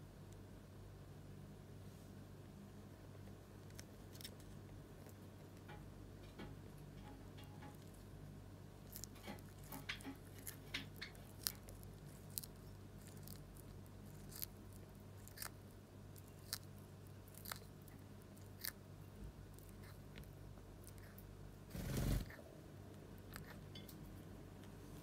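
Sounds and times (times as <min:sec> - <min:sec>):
tortoise chewing leaves: 0:08.8 - 0:21.3.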